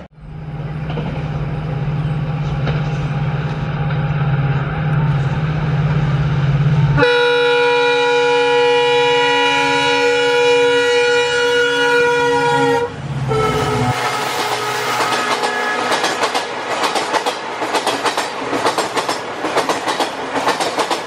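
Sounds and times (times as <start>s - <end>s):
diesel locomotive engine drone: 0.0s - 21.0s
multi-tone air horn blast: 6.9s - 16.3s.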